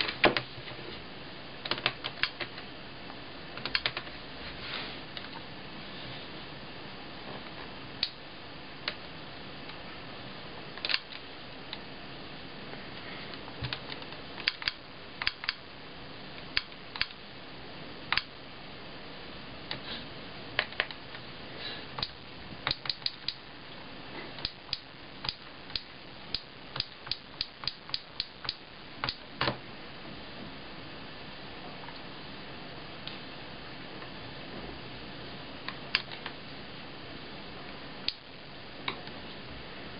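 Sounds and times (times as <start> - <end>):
faint hiss: 0.0 - 39.9
keys and stylus tapping clicks: 22.0 - 23.4.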